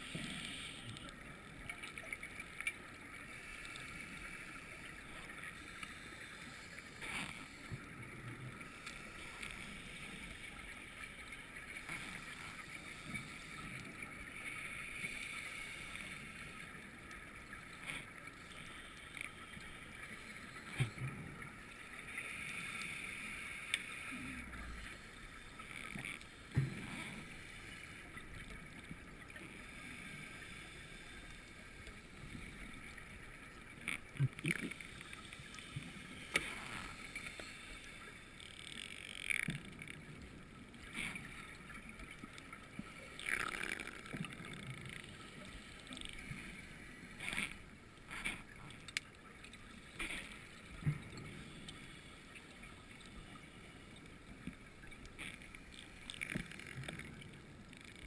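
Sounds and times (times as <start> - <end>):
underwater hiss: 0.0 - 1.1, 14.4 - 16.6, 21.6 - 25.5, 26.4 - 28.2, 29.4 - 32.6, 34.7 - 38.3.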